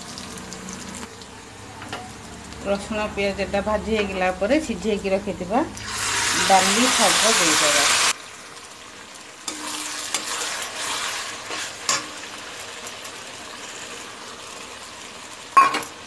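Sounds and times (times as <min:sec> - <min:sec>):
steady sizzle: 0:00.0 - 0:16.0
spatula scraping in a pan: 0:09.5 - 0:12.3.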